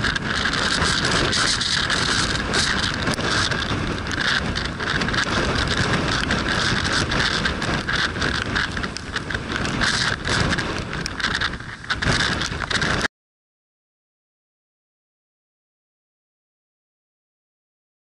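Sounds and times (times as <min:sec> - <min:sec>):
heavy surf: 0:00.0 - 0:13.1
wind gusting on microphone: 0:00.0 - 0:13.1.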